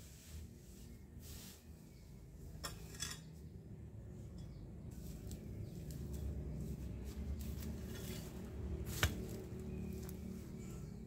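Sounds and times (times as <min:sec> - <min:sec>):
garden tool scraping ground: 0:00.0 - 0:02.0, 0:04.9 - 0:10.2.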